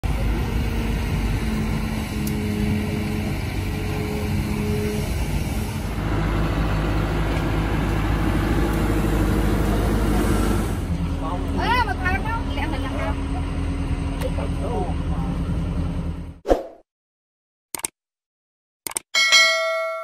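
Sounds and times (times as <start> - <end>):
excavator diesel engine under load: 0.0 - 16.4.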